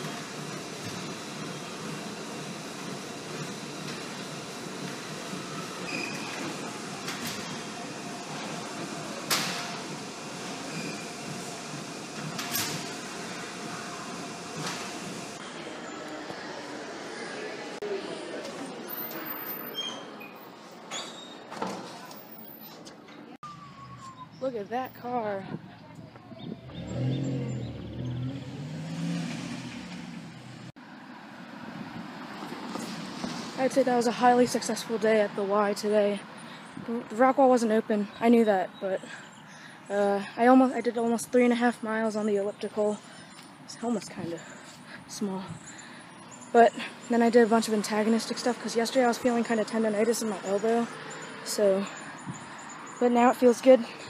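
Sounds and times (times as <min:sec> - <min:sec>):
car engine accelerating: 0:26.4 - 0:30.8.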